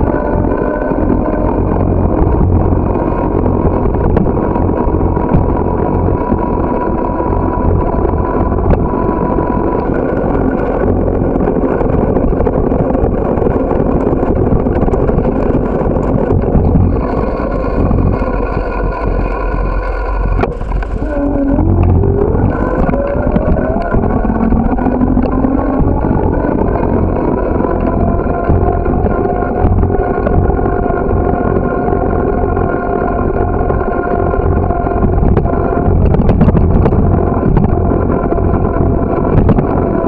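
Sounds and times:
bicycle tyres on asphalt: 0.0s - 40.0s
wind buffeting microphone: 0.0s - 40.0s.

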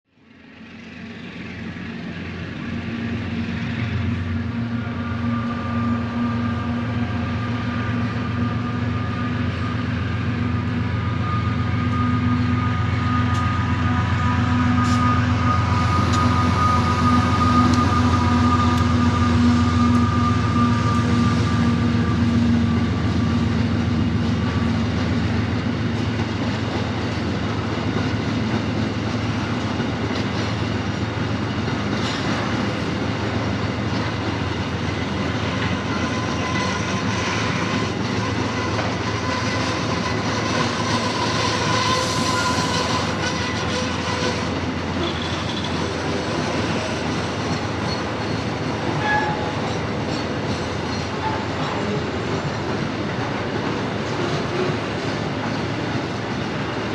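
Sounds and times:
locomotive low drone: 0.1s - 56.9s
high whine: 3.2s - 25.9s.

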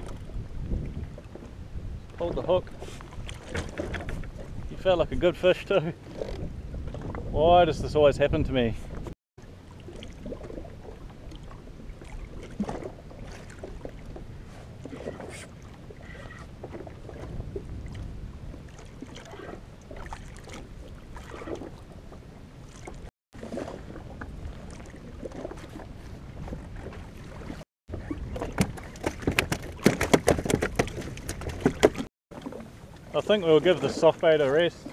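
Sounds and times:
wind on microphone: 0.0s - 5.4s, 6.1s - 9.2s, 10.3s - 22.2s
water lapping against hull: 0.0s - 34.9s.

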